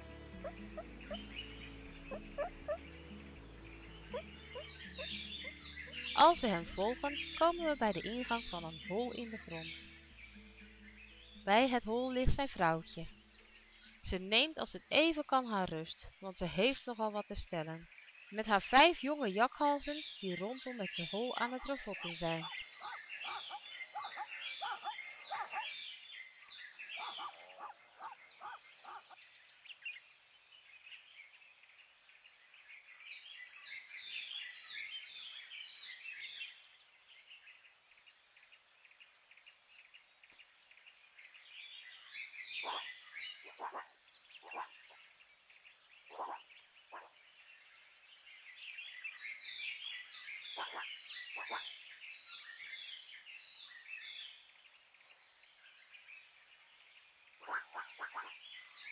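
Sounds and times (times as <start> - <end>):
low croaking calls: 0.0 - 3.0, 3.8 - 9.8, 20.4 - 25.8, 26.8 - 29.2, 42.5 - 45.1, 46.0 - 47.3, 50.4 - 51.9, 57.3 - 58.6
high chirping calls: 0.0 - 3.1, 3.7 - 9.9, 18.4 - 26.0, 26.6 - 29.2, 42.0 - 45.0, 49.0 - 51.8.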